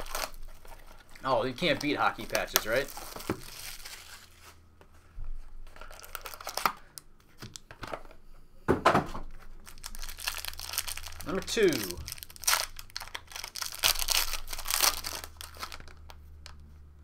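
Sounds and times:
packaging tearing and rustling: 0:00.0 - 0:04.6, 0:05.7 - 0:06.9, 0:09.6 - 0:16.6.

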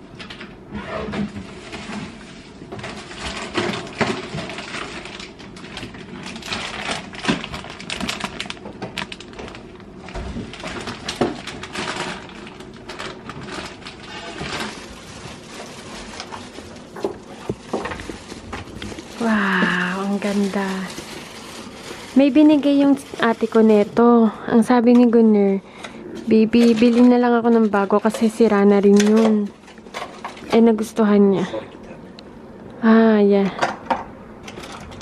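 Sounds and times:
plastic bags crinkling: 0:01.6 - 0:24.8, 0:26.3 - 0:31.0.

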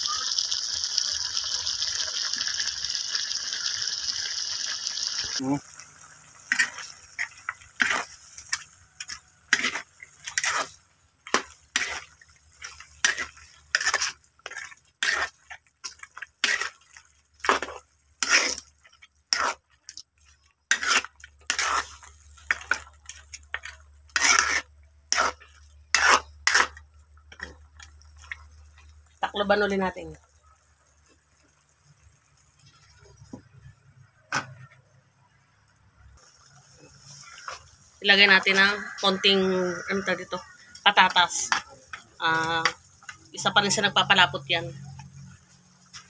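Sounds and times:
metal ladle scraping a wok: 0:05.9 - 0:18.7, 0:19.3 - 0:19.6, 0:20.7 - 0:27.5.

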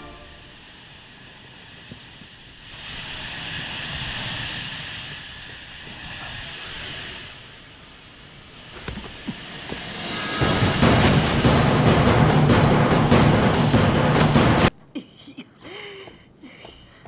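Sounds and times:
gas spray hissing: 0:00.0 - 0:11.5
low rumble: 0:00.0 - 0:14.7.

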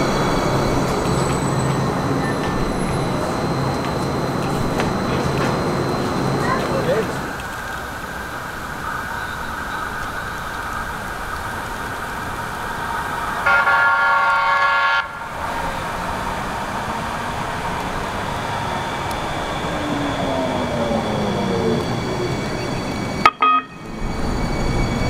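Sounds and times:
light rail motor whine: 0:00.0 - 0:25.0
train horn blast: 0:13.4 - 0:15.2, 0:23.2 - 0:23.9.

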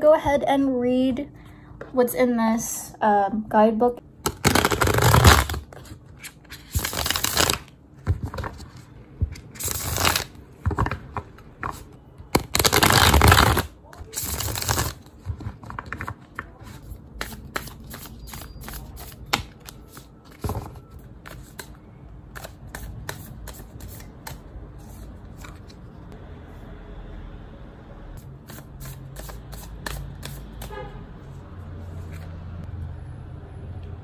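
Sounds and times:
cards being shuffled by hand: 0:04.3 - 0:11.0, 0:11.6 - 0:26.0, 0:28.5 - 0:30.7.

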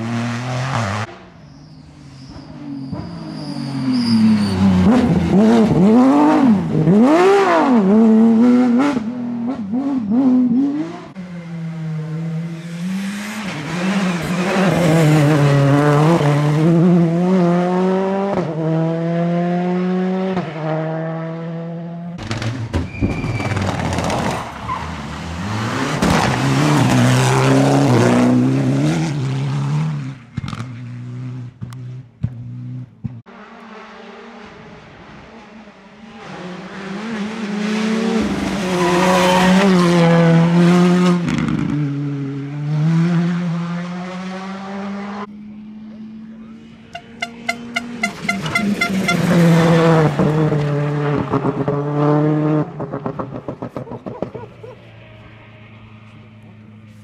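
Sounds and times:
rally car engines revving: 0:00.0 - 0:57.0
exhaust pops and cracks: 0:22.2 - 0:24.4.

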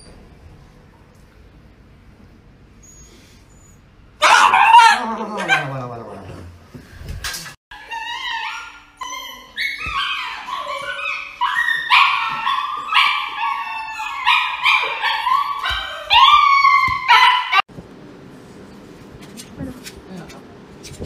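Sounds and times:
dog yelping and howling: 0:04.2 - 0:05.8, 0:07.7 - 0:17.7.

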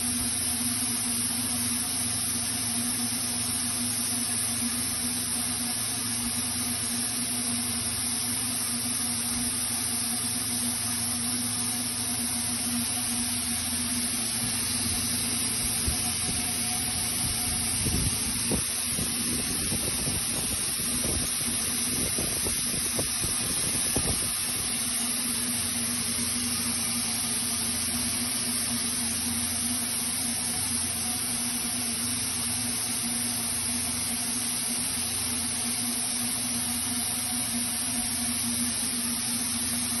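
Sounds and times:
machine hum: 0:09.2 - 0:36.1
machine hissing: 0:12.5 - 0:29.4.

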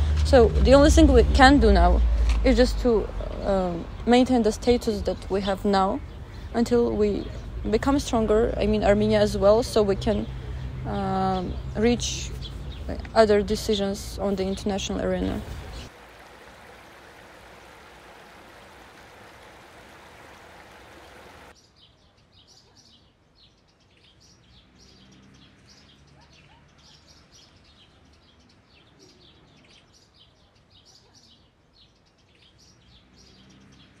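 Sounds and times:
songbirds chirping: 0:00.0 - 0:34.0
stream rushing over rocks: 0:15.4 - 0:21.6.

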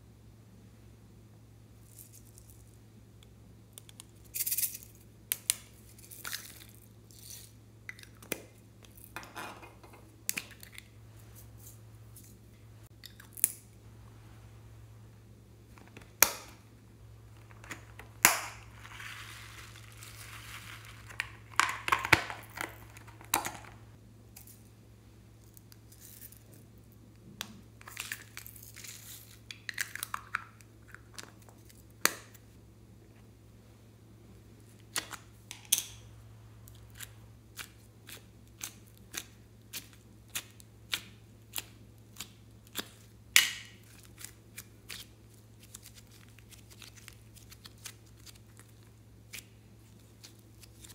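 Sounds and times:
plastic crinkling: 0:17.4 - 0:23.8.

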